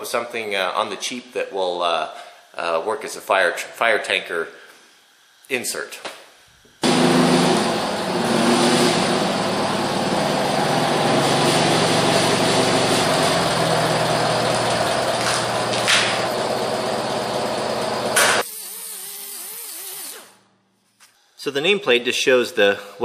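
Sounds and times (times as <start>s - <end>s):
forklift engine running: 6.8s - 18.4s
handheld grinder whirring on metal: 14.5s - 20.4s.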